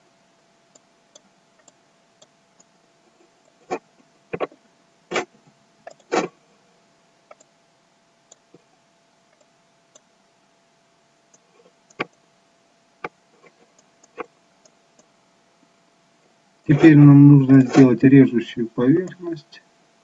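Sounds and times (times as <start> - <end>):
faint steady hum: 0.0 - 20.0
computer mouse clicks: 4.4 - 5.3, 5.9 - 6.3, 7.3 - 7.5, 11.3 - 12.2.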